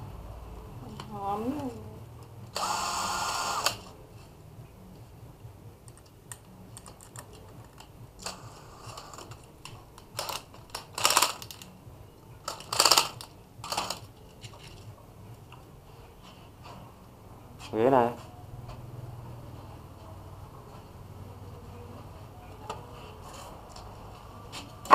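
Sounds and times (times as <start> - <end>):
plastic packaging crackling: 8.2 - 11.8, 12.4 - 14.8.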